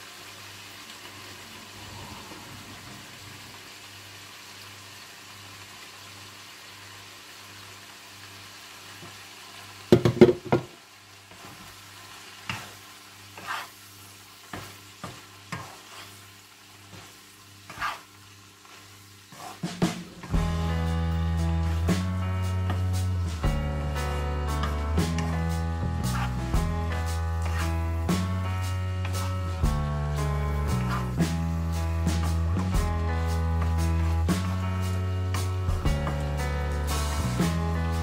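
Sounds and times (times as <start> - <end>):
carrots sizzling in a frying pan: 0.0 - 1.9, 2.5 - 38.0
loud clatter against pan: 9.9 - 10.7
wooden spatula knocking and scraping: 9.9 - 10.7.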